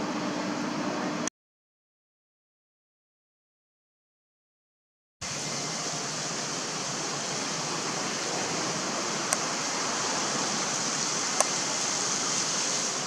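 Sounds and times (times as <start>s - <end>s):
steady rushing outdoor noise: 5.2s - 13.0s.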